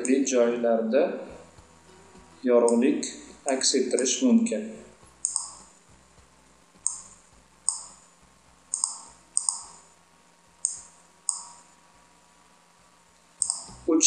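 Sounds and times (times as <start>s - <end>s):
computer mouse clicking: 5.2s - 5.8s, 6.8s - 8.0s, 8.7s - 9.9s, 10.6s - 11.7s, 13.4s - 13.9s.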